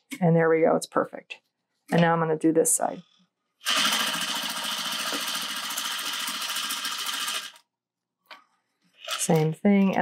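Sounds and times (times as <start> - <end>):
sewing machine running: 3.6 - 7.6.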